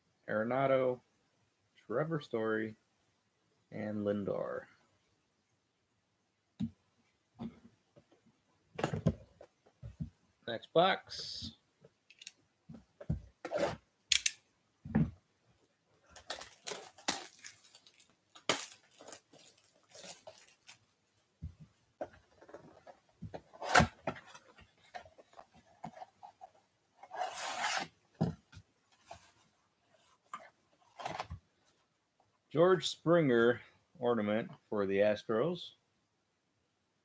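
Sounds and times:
cardboard tearing: 27.0 - 27.9.

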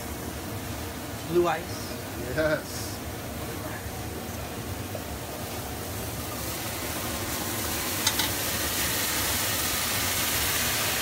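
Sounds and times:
food sizzling in a pan: 3.7 - 11.0
liquid poured into hot pan: 6.1 - 11.0.

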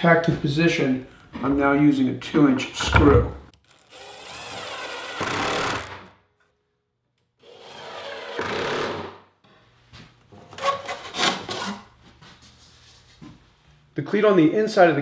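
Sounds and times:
wooden jig knocking and scraping: 2.8 - 3.4.

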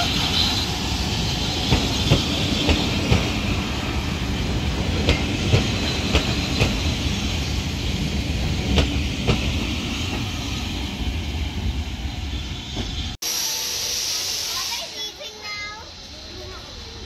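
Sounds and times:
train coaches rumbling past: 0.0 - 17.0
steady hiss: 13.2 - 17.0.

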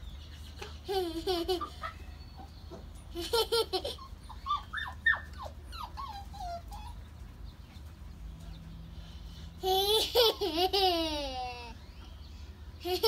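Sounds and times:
toddler giggling: 0.6 - 2.0, 3.1 - 6.8, 9.6 - 11.8.

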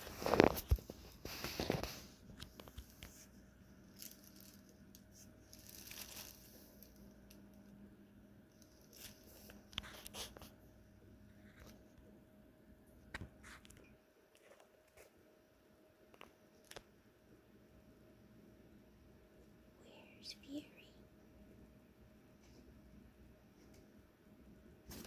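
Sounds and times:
nylon tunnel crinkling: 0.0 - 7.0
faint room hum: 0.0 - 25.0.

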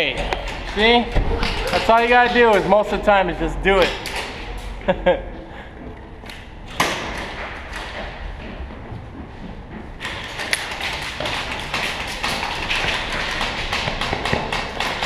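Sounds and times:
footsteps on hard floor: 7.4 - 14.4.

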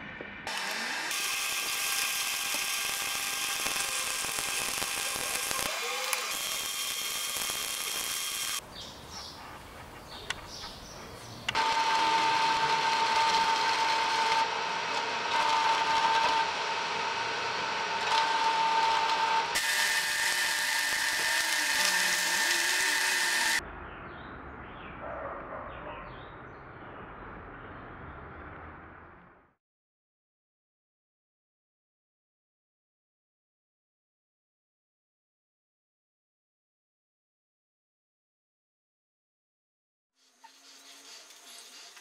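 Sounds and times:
power tool whining: 0.5 - 8.6, 11.5 - 23.6
arc welding hiss: 1.2 - 8.6, 19.6 - 23.6.

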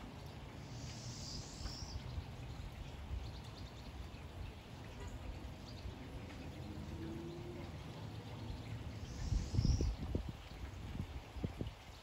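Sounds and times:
steady rain falling: 0.0 - 9.3
songbird calling: 0.6 - 2.6, 5.0 - 10.2
faint bird chirps: 0.7 - 2.1, 9.0 - 10.0.

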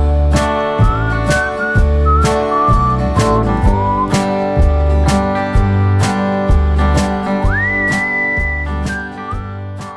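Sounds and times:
acoustic guitar strumming: 0.0 - 9.9
whistled melody: 0.7 - 4.4, 7.4 - 9.6.

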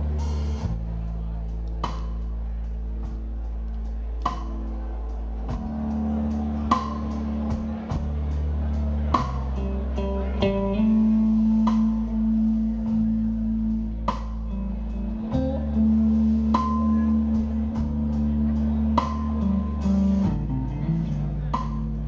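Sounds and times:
live blues-rock band: 1.6 - 22.0
electric guitar sustained notes: 4.8 - 22.0.

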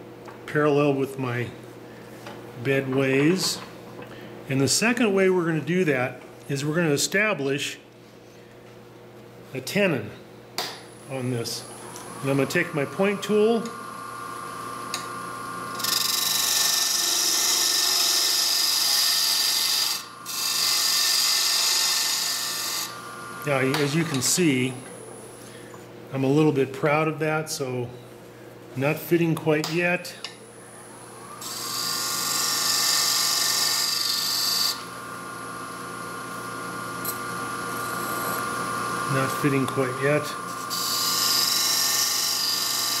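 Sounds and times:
lathe motor hum: 10.9 - 25.4, 30.4 - 43.0.

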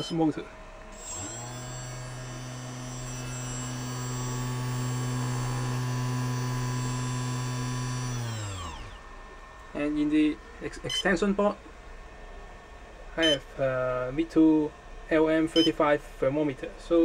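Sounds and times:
electric motor whine: 0.9 - 9.3.

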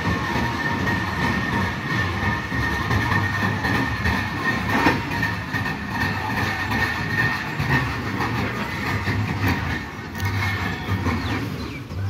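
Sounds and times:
high wheel squeal: 0.0 - 12.0
train wheels rumbling on rails: 0.0 - 12.0.

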